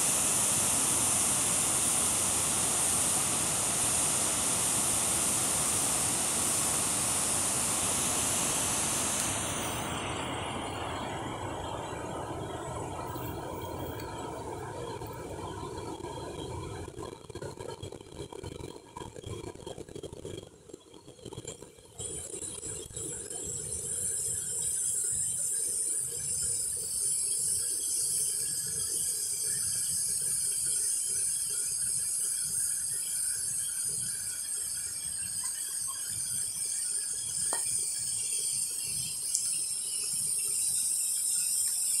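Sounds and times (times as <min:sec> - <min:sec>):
insect chorus buzzing: 0:00.0 - 0:16.0, 0:27.7 - 0:42.0.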